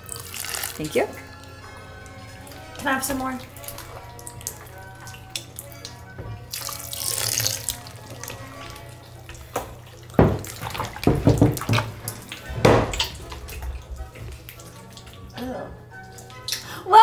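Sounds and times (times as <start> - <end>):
liquid poured into a bowl: 0.0 - 0.8, 6.5 - 15.3.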